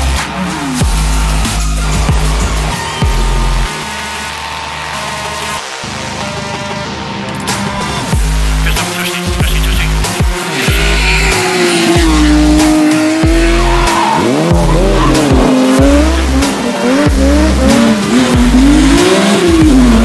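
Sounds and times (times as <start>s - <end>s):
electronic music with heavy bass: 0.0s - 20.0s
car engine revving: 7.3s - 20.0s.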